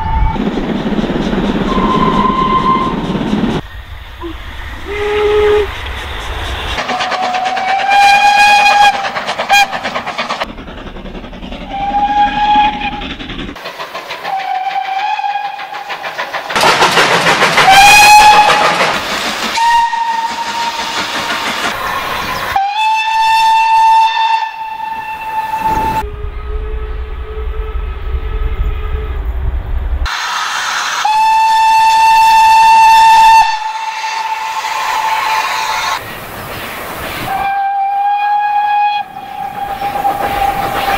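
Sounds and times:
locomotive exhaust beat: 0.0 - 36.0, 37.3 - 40.9
train running on rails: 0.0 - 40.9
steam locomotive whistle: 1.6 - 3.1, 4.2 - 5.9, 6.8 - 9.8, 11.7 - 13.0, 14.2 - 15.9, 17.6 - 18.9, 19.5 - 21.0, 21.8 - 29.3, 30.1 - 36.0, 37.3 - 40.8.

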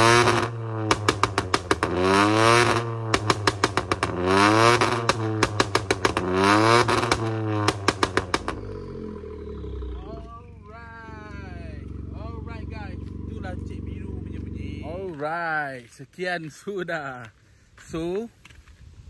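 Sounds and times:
exhaust pops: 0.0 - 10.4
car engine revving: 0.0 - 15.2.

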